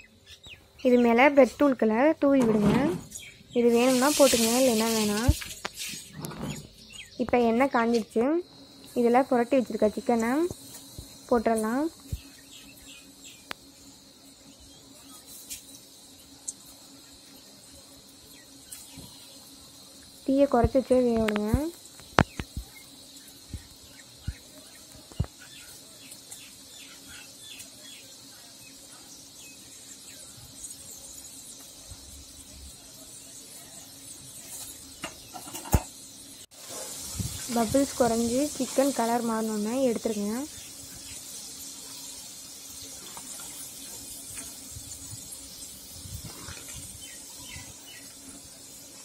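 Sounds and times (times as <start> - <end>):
faint frying sizzle: 0.0 - 49.0
spoon stirring oil: 33.2 - 48.2.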